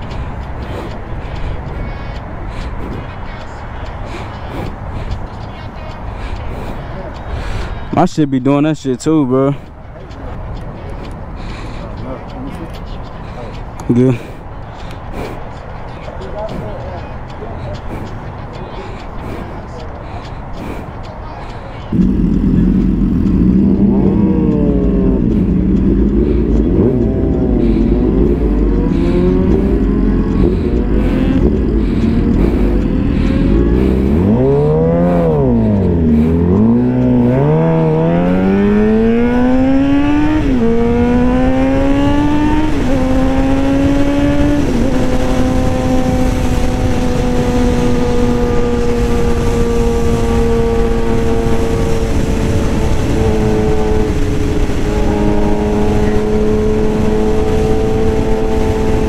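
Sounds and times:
motorcycle engine revving: 21.6 - 59.0.

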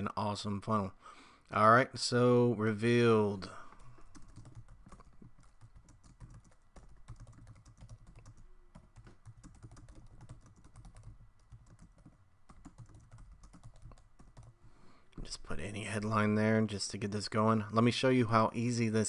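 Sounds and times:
typing on computer keyboard: 3.8 - 14.6.

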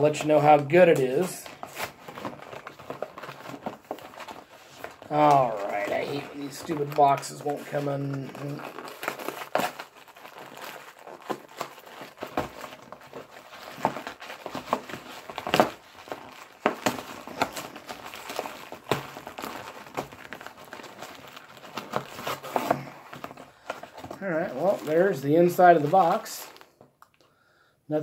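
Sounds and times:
cardboard box crinkling and tearing: 0.0 - 27.0.

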